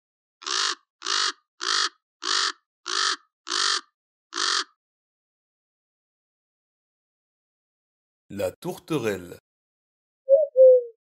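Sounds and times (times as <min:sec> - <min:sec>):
crow cawing: 0:00.4 - 0:04.8.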